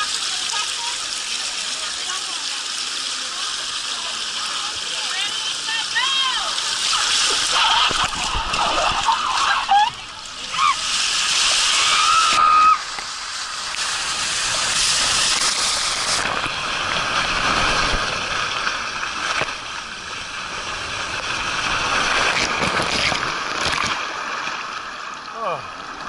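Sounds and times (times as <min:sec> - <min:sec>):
rushing water on a slide: 0:00.0 - 0:26.0
splashing water: 0:00.0 - 0:26.0.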